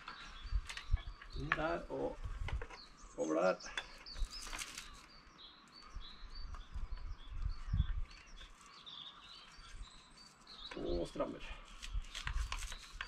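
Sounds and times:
small birds chirping: 0:00.0 - 0:13.0
brief rustle: 0:04.0 - 0:05.1, 0:11.6 - 0:13.0.

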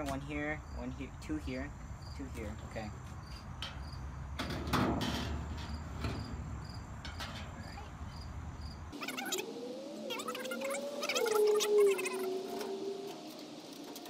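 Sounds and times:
crickets chirping: 0:00.0 - 0:14.0
metal panel clattering scrape: 0:04.4 - 0:06.4.

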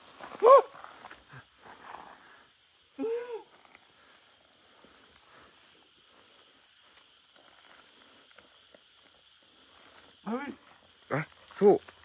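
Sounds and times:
night insects: 0:00.0 - 0:12.0.

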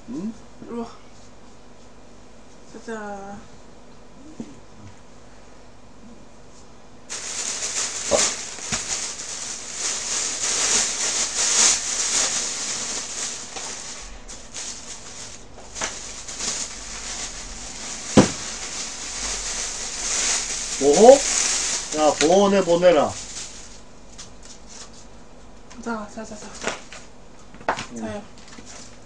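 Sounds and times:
plastic bag rustling: 0:07.1 - 0:25.1.

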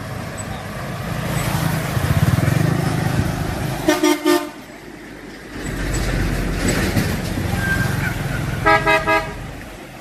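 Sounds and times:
trucks rumbling past: 0:00.0 - 0:10.0
truck horn toots: 0:03.9 - 0:04.6, 0:08.6 - 0:09.4.

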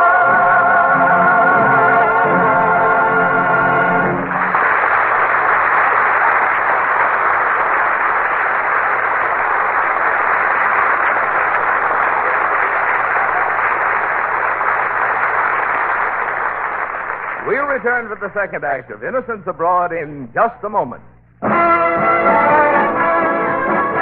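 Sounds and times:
music: 0:00.0 - 0:04.6, 0:21.3 - 0:24.0.

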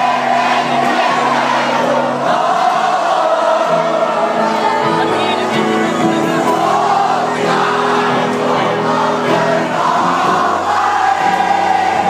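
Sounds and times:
crowd singing along: 0:00.0 - 0:12.0
live band playing loudly: 0:03.5 - 0:12.0.

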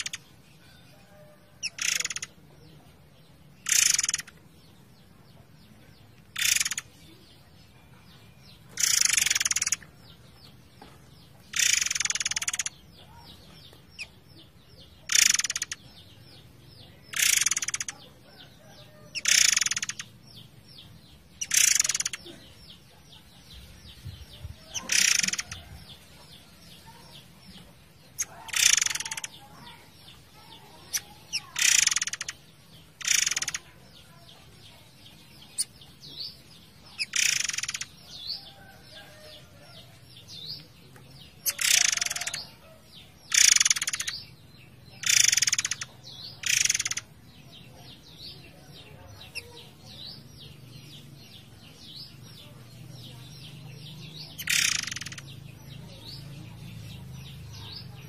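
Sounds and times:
soft bird chirps: 0:00.0 - 0:58.0
songbird rattling bursts: 0:03.6 - 0:04.3, 0:08.8 - 0:09.8, 0:11.5 - 0:12.7, 0:15.1 - 0:15.8, 0:17.1 - 0:17.9, 0:21.4 - 0:22.2, 0:24.8 - 0:25.6, 0:28.3 - 0:29.3, 0:30.4 - 0:32.3, 0:33.0 - 0:33.6, 0:37.0 - 0:37.8, 0:43.3 - 0:44.1, 0:45.0 - 0:47.0, 0:54.4 - 0:55.3.

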